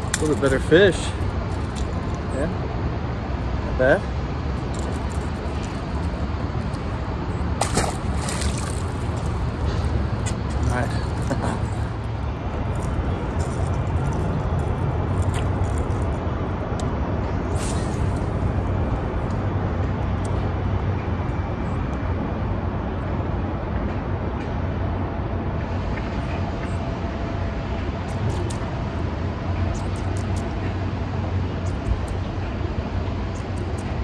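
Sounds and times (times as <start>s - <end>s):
road traffic rumble: 0.0s - 34.0s.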